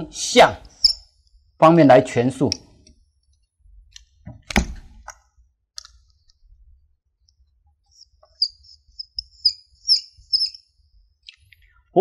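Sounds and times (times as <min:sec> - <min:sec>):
marker squeaking on whiteboard: 0:00.7 - 0:01.2, 0:07.8 - 0:10.7.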